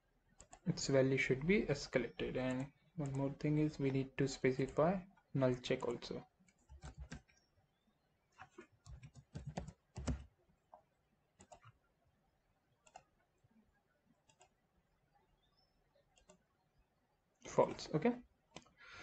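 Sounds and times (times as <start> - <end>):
keyboard typing: 0.3 - 0.8, 2.4 - 3.8, 4.4 - 7.4, 8.4 - 10.4, 11.4 - 11.8, 12.8 - 13.4, 14.2 - 14.6, 16.1 - 16.5
mouse clicks: 6.5 - 7.4, 11.4 - 11.8, 12.8 - 13.1, 14.2 - 14.6, 15.5 - 16.4.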